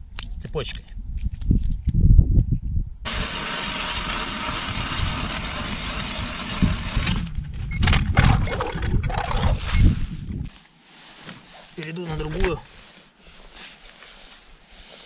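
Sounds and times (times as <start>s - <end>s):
ice auger grinding into ice: 3.1s - 7.4s.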